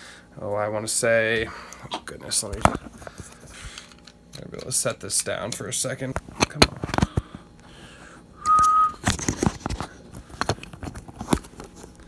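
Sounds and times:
short electronic beep: 8.4 - 9.0.

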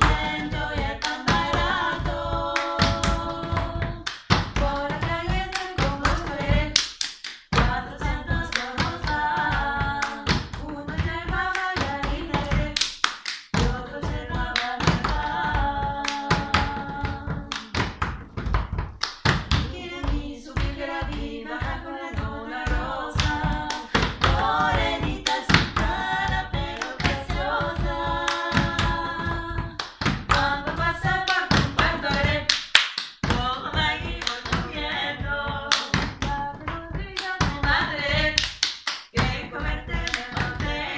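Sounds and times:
hands clapping: 0.0 - 40.9
women singing in polyphony: 0.0 - 40.9
hands slapping wooden floor: 14.6 - 33.4.

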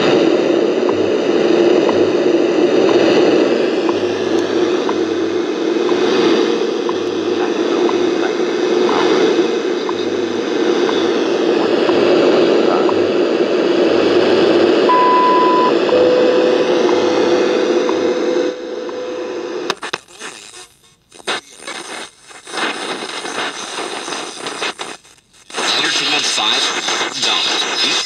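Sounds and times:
lower steady tone: 0.0 - 19.7
radio static: 0.0 - 28.0
high beep: 14.9 - 19.2.

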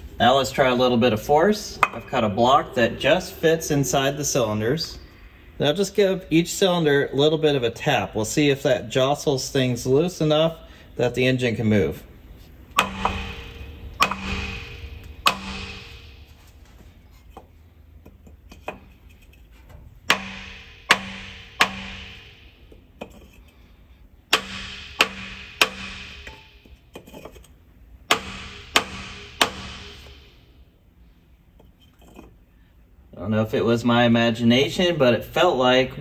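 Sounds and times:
hammer tapping on wooden block: 12.8 - 16.1, 20.1 - 22.4, 24.3 - 26.5, 28.1 - 30.2.

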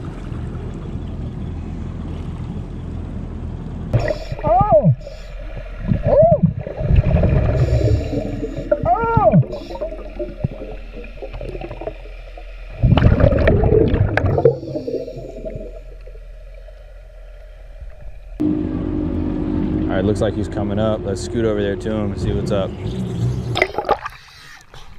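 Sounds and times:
exhaled bubbles rushing: 4.0 - 16.6, 23.5 - 24.6
diver breathing through regulator: 5.0 - 5.6, 7.3 - 8.8, 9.4 - 10.4, 14.3 - 15.9
short pitch-varying whines: 18.4 - 22.8.

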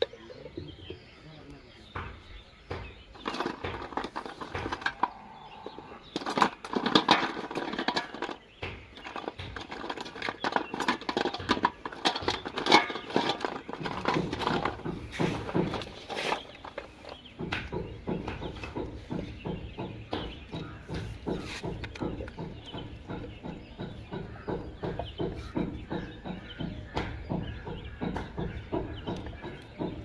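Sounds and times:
plastic pipe fittings clattering: 3.1 - 26.4.

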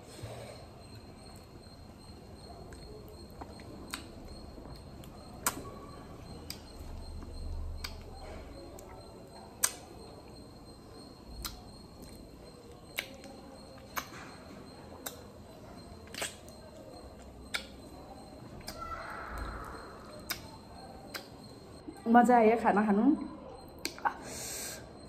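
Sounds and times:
sharp wet mouth clicks: 2.7 - 4.1, 5.0 - 5.8, 6.4 - 6.7, 7.8 - 8.1, 9.6 - 9.9, 11.4 - 12.2, 12.9 - 14.2, 15.0 - 15.3, 16.0 - 17.8, 19.6 - 21.4, 23.7 - 24.1
lips smacking and sucking fruit: 3.3 - 5.8, 14.9 - 15.3, 16.0 - 17.8, 19.4 - 21.4.

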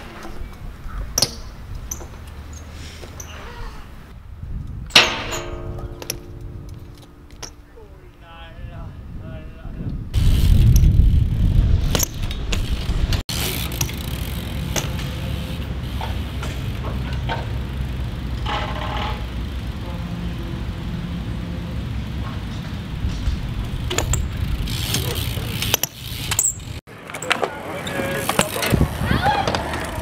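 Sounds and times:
bike tyres rolling over concrete: 9.9 - 30.0.

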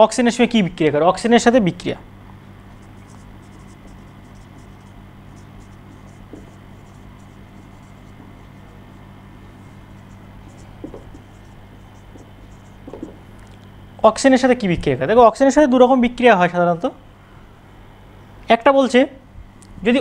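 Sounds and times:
low hum: 0.5 - 14.2
marker pen scratching on whiteboard: 2.7 - 13.2.

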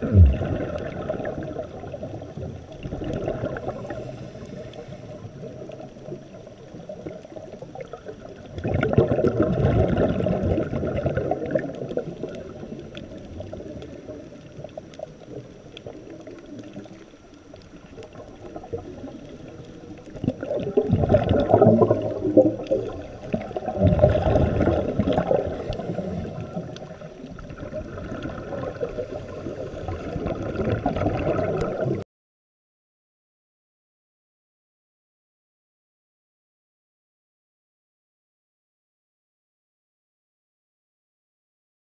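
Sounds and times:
regulator bubbles gurgling: 0.0 - 32.0.

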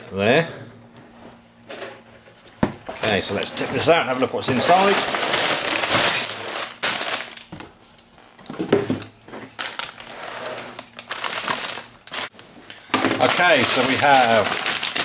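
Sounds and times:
plastic bags crinkling: 3.0 - 7.6, 8.9 - 12.4, 13.0 - 15.0
plastic bricks rattling: 4.5 - 7.3, 13.1 - 15.0.

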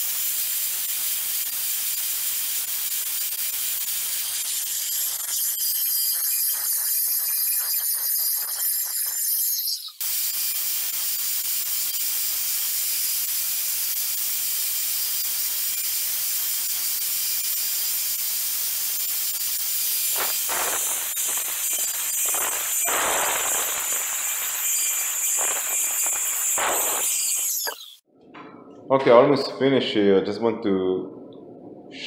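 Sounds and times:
angle grinder grinding tile: 15.0 - 28.0.

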